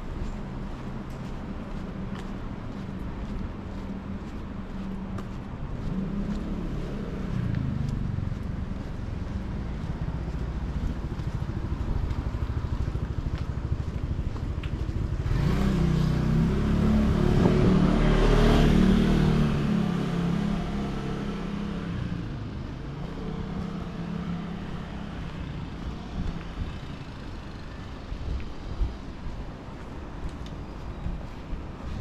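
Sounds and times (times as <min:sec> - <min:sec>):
vehicle engine passing by: 0:05.8 - 0:12.9, 0:14.8 - 0:27.4.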